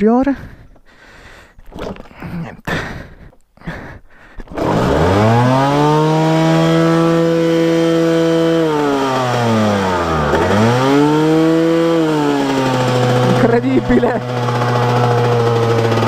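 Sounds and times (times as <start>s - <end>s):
motorcycle engine revving: 4.5s - 16.0s.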